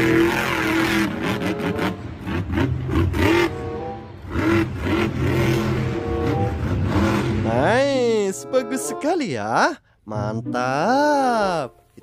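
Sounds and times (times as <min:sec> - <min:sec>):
truck engine revving hard: 0:00.0 - 0:08.0.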